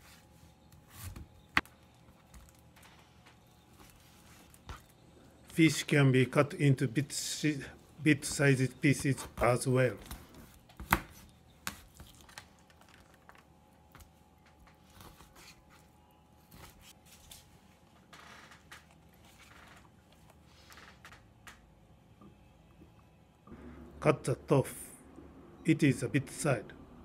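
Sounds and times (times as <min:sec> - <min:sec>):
slicing and handling sounds: 0:00.0 - 0:05.6, 0:07.8 - 0:17.9.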